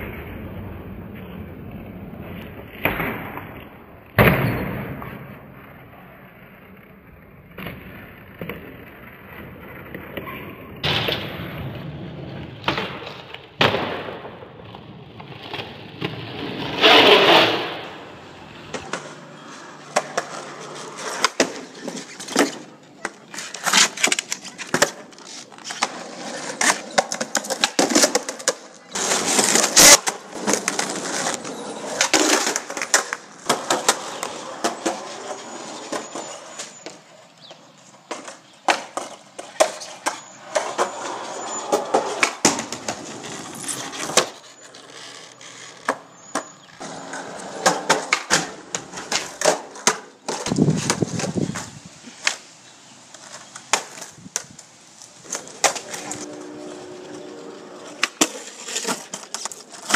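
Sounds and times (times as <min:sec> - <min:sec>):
skateboard wheels rolling on concrete: 0:00.0 - 0:59.9
skateboard pops and clacks: 0:02.4 - 0:05.6, 0:12.6 - 0:18.1, 0:21.1 - 0:31.0, 0:35.9 - 0:41.1, 0:41.7 - 0:44.4, 0:45.7 - 0:52.4, 0:53.1 - 0:56.1.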